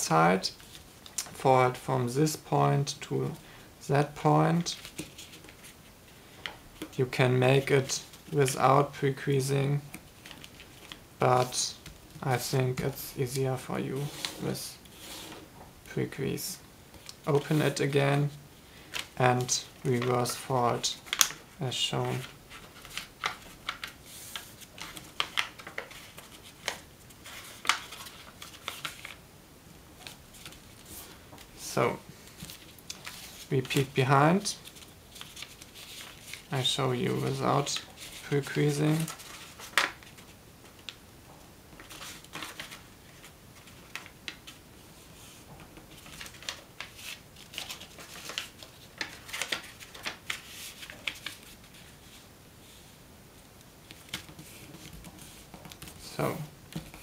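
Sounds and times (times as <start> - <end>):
paper crackling and rustling: 4.6 - 7.0, 9.8 - 12.0, 16.9 - 29.2, 30.0 - 31.6, 32.2 - 41.0, 41.7 - 52.8, 53.8 - 57.0.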